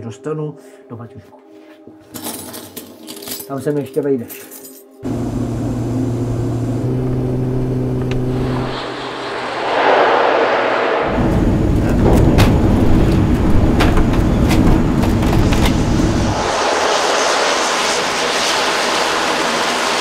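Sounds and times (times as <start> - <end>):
airplane engine and propeller noise: 5.0 - 20.0
hissing turboprop: 5.0 - 20.0
rattles and knocks: 11.9 - 15.8.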